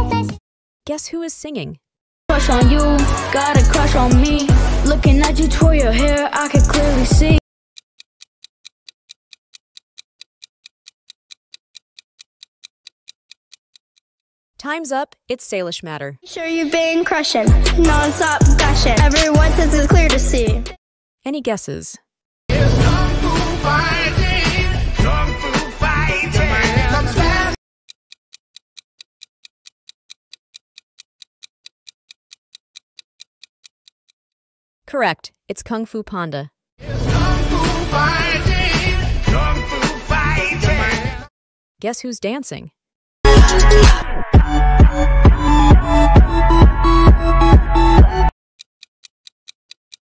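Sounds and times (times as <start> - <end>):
pop song: 0.0 - 0.4, 2.3 - 7.4, 16.3 - 20.8, 22.5 - 27.6, 36.8 - 41.3, 43.3 - 48.3
countdown timer ticking: 2.3 - 7.4, 17.4 - 20.8, 44.4 - 48.3.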